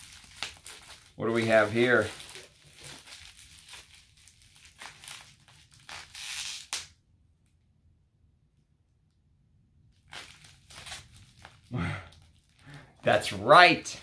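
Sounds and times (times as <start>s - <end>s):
plastic wrap crinkling and tearing: 0.0s - 7.0s, 10.0s - 13.4s.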